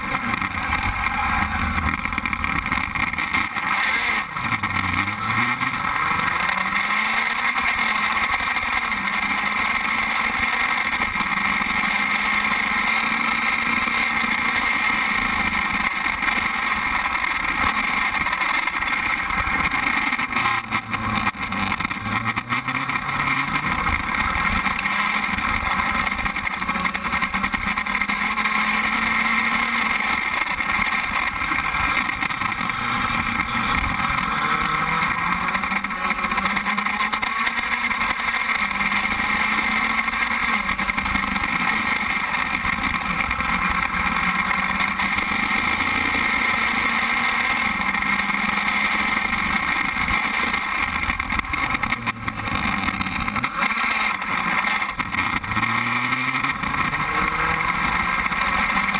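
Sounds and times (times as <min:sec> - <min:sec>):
race car engine idling: 0:00.0 - 0:12.9.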